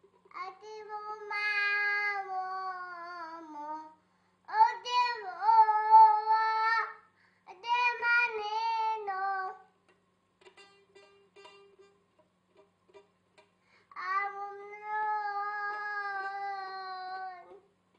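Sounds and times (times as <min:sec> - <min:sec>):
girl singing: 0:00.3 - 0:09.8, 0:13.8 - 0:17.7.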